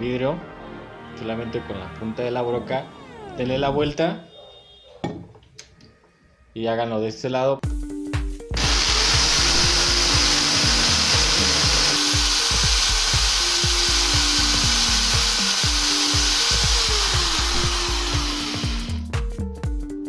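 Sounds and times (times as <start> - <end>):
electric drill grinding glass: 8.6 - 19.0.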